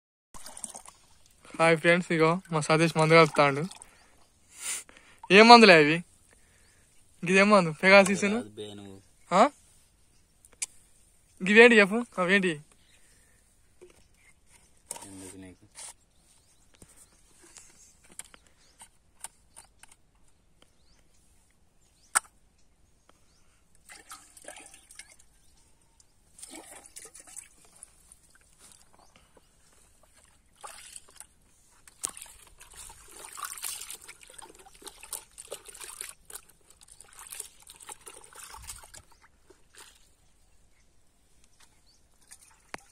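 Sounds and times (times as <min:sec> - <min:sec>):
water sloshing in bucket: 0:00.4 - 0:04.2, 0:23.8 - 0:25.4, 0:26.3 - 0:40.3, 0:42.1 - 0:42.9.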